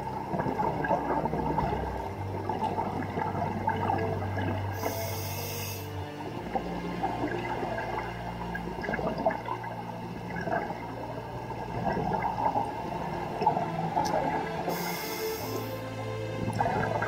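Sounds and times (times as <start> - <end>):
breath bubbles gurgling underwater: 0.0 - 15.8, 16.4 - 17.0
motorboat engine hum: 0.0 - 17.0
regulator inhale hiss: 4.8 - 6.0, 14.7 - 15.9.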